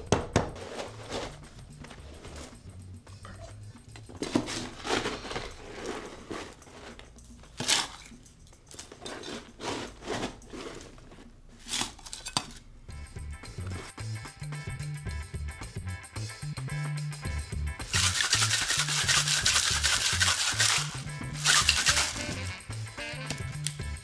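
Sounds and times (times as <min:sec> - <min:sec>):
shaker being closed: 0:17.8 - 0:24.0
ice clinking on metal: 0:17.9 - 0:22.5.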